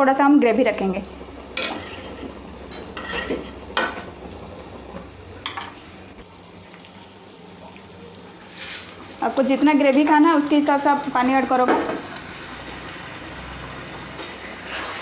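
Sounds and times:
spatula scraping pan: 0:01.6 - 0:04.0, 0:14.1 - 0:15.0.

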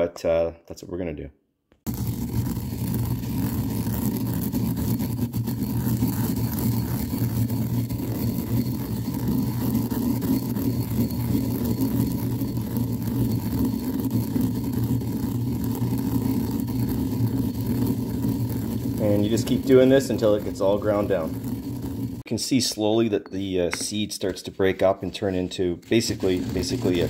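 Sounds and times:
pestle grinding in mortar: 0:01.9 - 0:22.3, 0:25.8 - 0:27.0.

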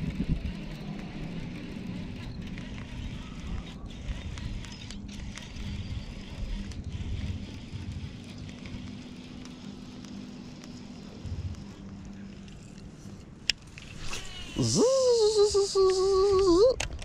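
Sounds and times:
wind rumbling on microphone: 0:00.0 - 0:10.0
fishing reel cranking: 0:00.0 - 0:16.8.

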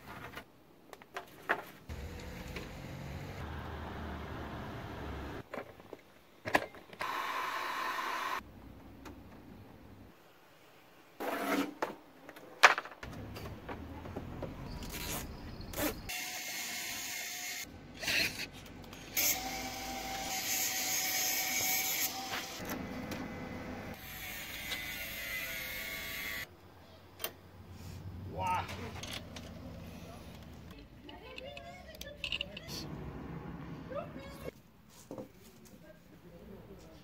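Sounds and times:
clicks and knocks of metal parts: 0:28.7 - 0:32.7.

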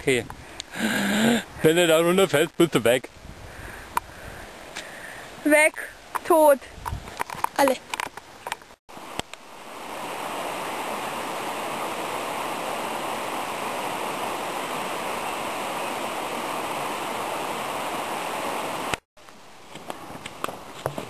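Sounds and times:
flowing water rushing: 0:08.9 - 0:19.0.

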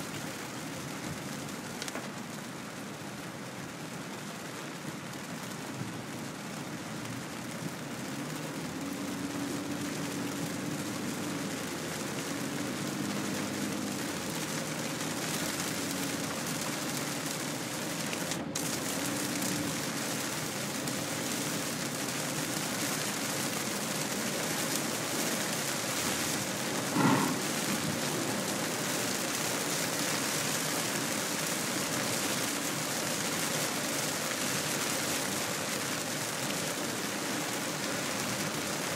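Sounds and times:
heavy rain on car windscreen: 0:00.0 - 0:38.9
tyres hissing on wet road: 0:00.0 - 0:38.9
low engine hum: 0:23.4 - 0:29.6.

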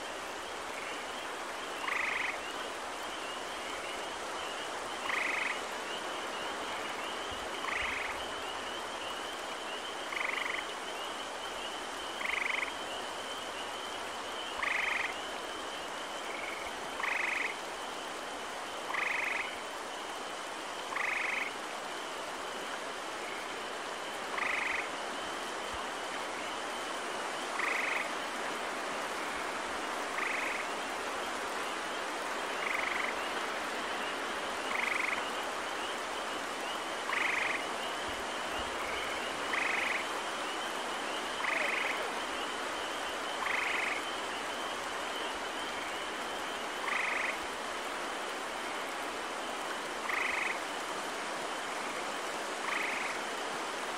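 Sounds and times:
steady hiss: 0:00.0 - 0:53.9
tree frogs trilling: 0:00.0 - 0:53.9
high chorus of peepers: 0:00.3 - 0:50.9, 0:51.7 - 0:53.6.

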